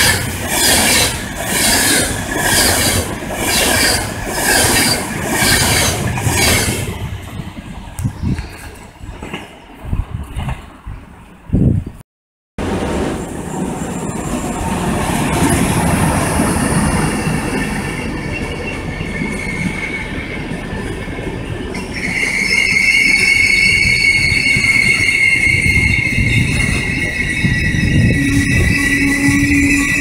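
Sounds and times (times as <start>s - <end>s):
high wheel squeal: 0.0s - 7.0s, 13.2s - 30.0s
train wheels rumbling on rails: 0.0s - 11.8s, 12.6s - 30.0s.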